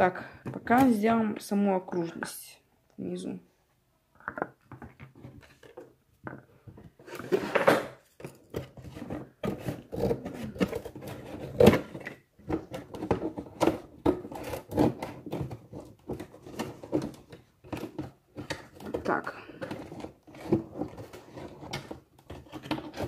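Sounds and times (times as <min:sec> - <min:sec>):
cardboard scraping and rustling: 0:06.9 - 0:08.0, 0:08.6 - 0:19.1, 0:19.7 - 0:23.0.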